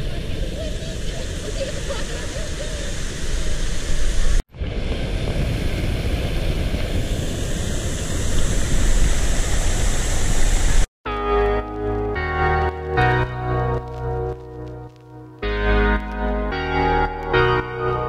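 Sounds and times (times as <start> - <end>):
organ music: 11.1 - 18.0.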